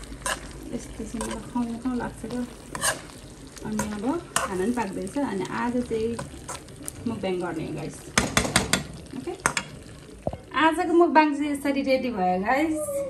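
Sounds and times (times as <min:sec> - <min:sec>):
spoon scraping metal pot: 0:00.2 - 0:01.7, 0:02.3 - 0:04.8, 0:06.2 - 0:06.7.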